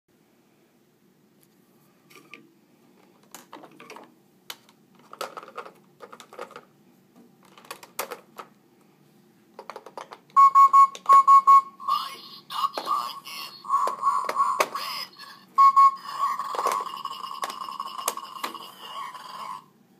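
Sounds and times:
plastic toy clicks and clatter: 0:04.5 - 0:06.7, 0:07.4 - 0:08.5, 0:16.4 - 0:18.7
electronic toy beeps: 0:10.4 - 0:12.2, 0:12.9 - 0:19.6
tinny electronic tune: 0:13.1 - 0:19.7.

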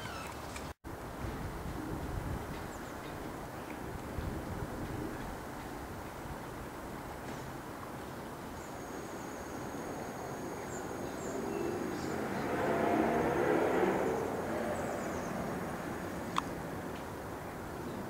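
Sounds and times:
outdoor background noise: 0:00.0 - 0:18.0
vehicle passing: 0:10.4 - 0:17.4.

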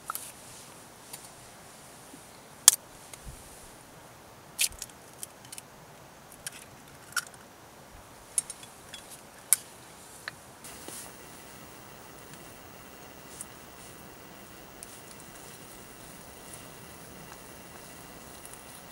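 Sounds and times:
sharp pops and crackles: 0:10.6 - 0:18.9
eggs sizzling in a pan: 0:10.7 - 0:18.9.

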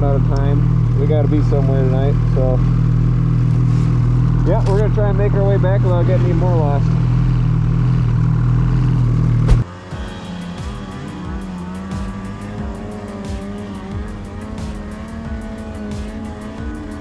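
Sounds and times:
snowmobile engine idling: 0:00.0 - 0:09.6
music with a steady beat: 0:09.5 - 0:17.0.

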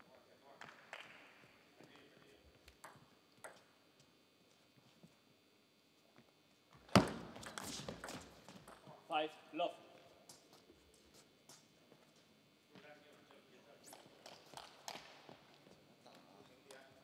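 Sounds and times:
table tennis bat hit: 0:06.9 - 0:08.2.

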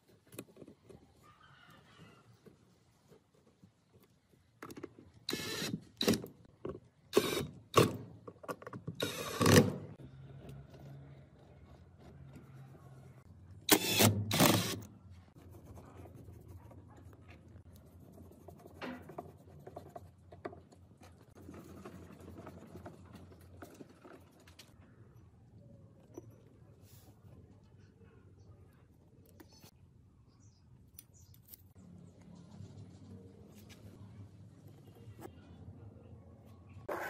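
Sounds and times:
cordless drill driving screws: 0:05.3 - 0:06.2, 0:09.0 - 0:09.8, 0:13.7 - 0:14.9
faint handling sounds: 0:30.8 - 0:35.6.

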